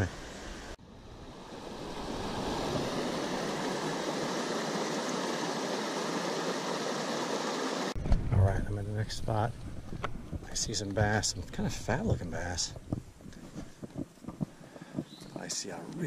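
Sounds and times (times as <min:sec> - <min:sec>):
water rushing over rocks: 0:01.1 - 0:08.0.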